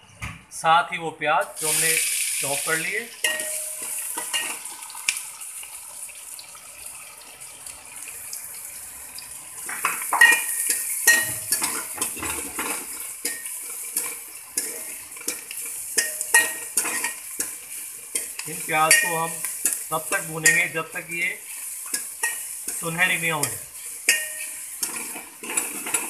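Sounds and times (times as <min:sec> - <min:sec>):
onions sizzling in hot fat: 0:01.4 - 0:26.0
metal spoon scraping a pan: 0:03.2 - 0:04.8, 0:09.6 - 0:26.0.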